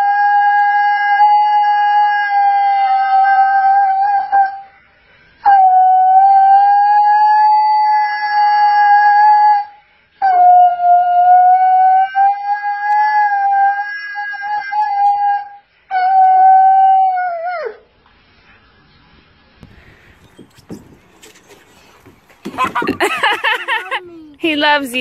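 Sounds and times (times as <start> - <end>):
husky howling: 0.0 - 4.7, 5.4 - 17.8.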